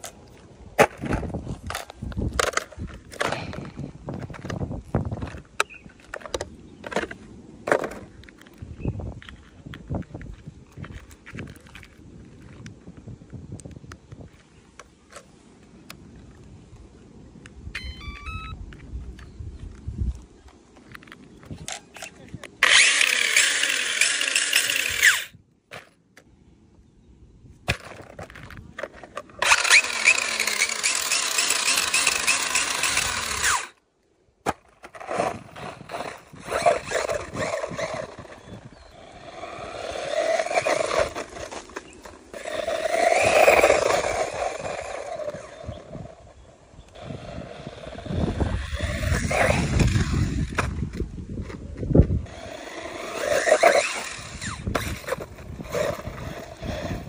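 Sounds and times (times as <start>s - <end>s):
tyres scraping on gravel: 0.0s - 13.0s, 20.8s - 26.3s, 27.7s - 33.8s, 34.4s - 57.0s
electric toy car motor whining: 22.6s - 25.4s, 29.4s - 33.8s, 35.0s - 46.2s, 46.9s - 50.8s, 52.2s - 57.0s.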